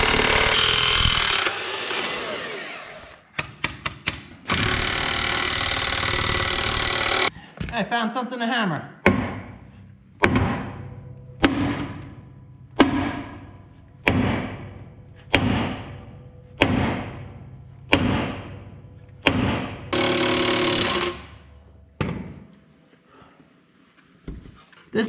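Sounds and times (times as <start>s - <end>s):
sledgehammer striking steel: 9.0s - 21.4s.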